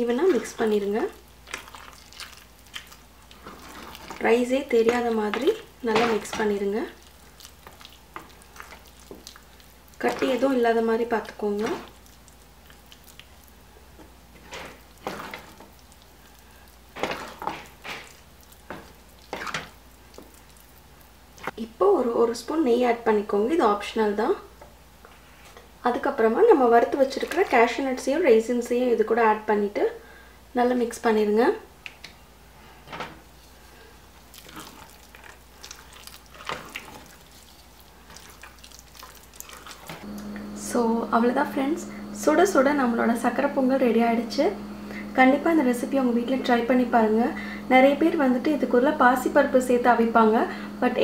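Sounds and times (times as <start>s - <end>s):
spatula scraping pot: 0.0s - 13.4s, 14.3s - 20.5s, 34.4s - 40.1s
wooden spoon stirring thick food: 0.0s - 21.6s, 33.5s - 40.5s.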